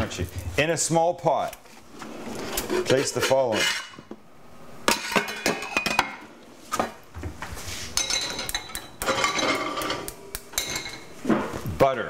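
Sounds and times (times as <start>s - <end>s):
metal cookware clattering: 4.9s - 6.2s, 8.0s - 11.2s.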